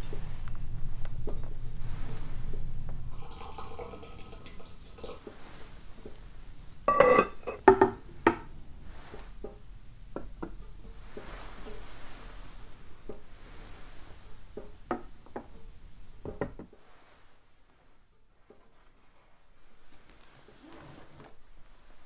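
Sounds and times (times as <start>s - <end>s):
ceramic clink: 3.2s - 5.2s, 6.9s - 7.9s.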